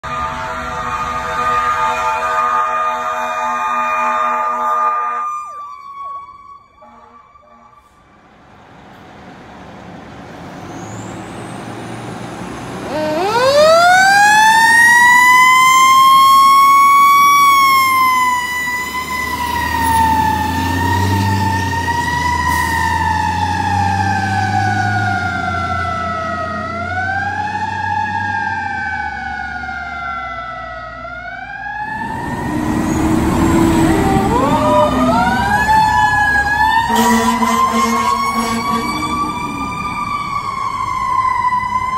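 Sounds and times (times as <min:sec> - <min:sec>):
horn blast: 0:00.0 - 0:05.3, 0:06.8 - 0:08.1, 0:36.8 - 0:39.8
fire engine siren wailing: 0:00.0 - 0:08.4, 0:10.4 - 0:41.9
truck engine rumble: 0:07.9 - 0:41.9.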